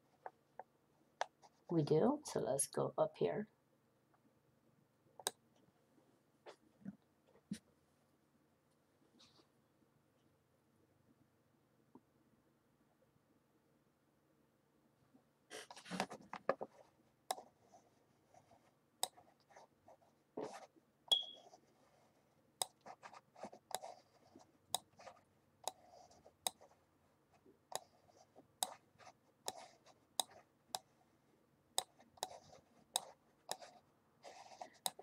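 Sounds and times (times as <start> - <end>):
computer mouse clicking: 19.0 - 19.2, 22.6 - 22.9, 23.7 - 24.0, 24.7 - 24.9, 25.6 - 26.6, 27.7 - 28.0, 29.4 - 30.9, 31.8 - 33.7.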